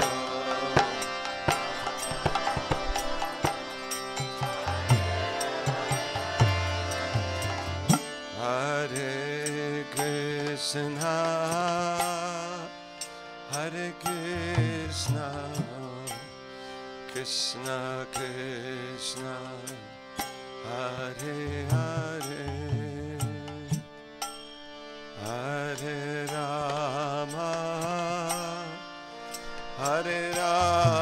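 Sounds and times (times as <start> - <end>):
held drone tones: 0.0 - 19.9.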